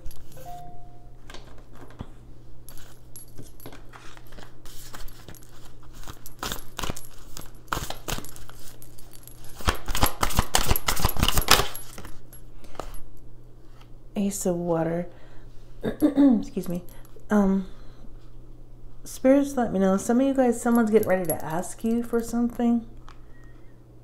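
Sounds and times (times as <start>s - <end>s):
cards being shuffled: 3.6s - 8.8s, 9.5s - 13.0s.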